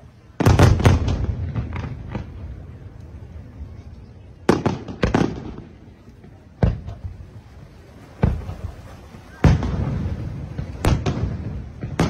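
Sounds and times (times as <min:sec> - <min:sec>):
firework bangs with echo: 0:00.4 - 0:02.4, 0:04.5 - 0:05.8, 0:08.2 - 0:08.7, 0:09.4 - 0:12.0.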